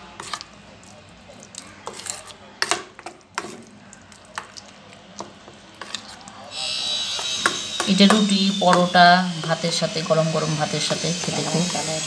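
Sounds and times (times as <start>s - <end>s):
soft wet stirring of paste: 0.0s - 8.0s.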